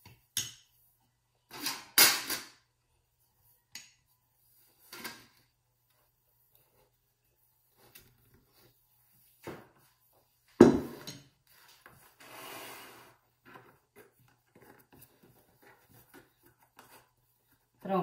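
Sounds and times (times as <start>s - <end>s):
rolling pin knocking on countertop: 10.6s - 11.1s.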